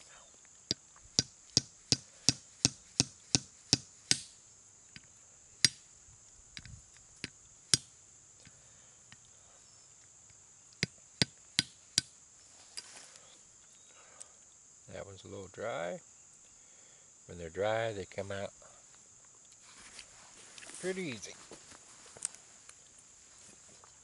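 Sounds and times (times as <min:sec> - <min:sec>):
high insect buzz: 0:00.0 - 0:24.0
tomahawk knocking nut on stone: 0:01.2 - 0:04.4, 0:05.0 - 0:05.8, 0:10.8 - 0:12.1.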